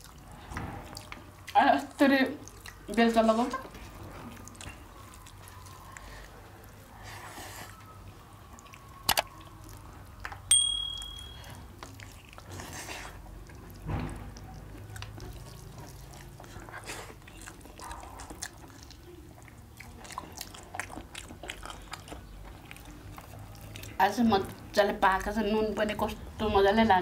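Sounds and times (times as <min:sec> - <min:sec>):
chewing and wet mouth sounds: 0:00.0 - 0:27.0
steel tableware clinking: 0:10.5 - 0:11.5.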